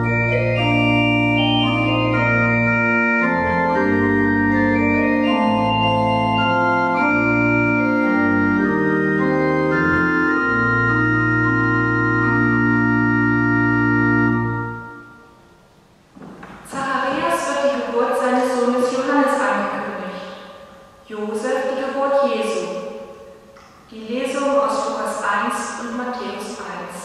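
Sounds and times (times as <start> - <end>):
organ playing slow chords: 0.0 - 16.1.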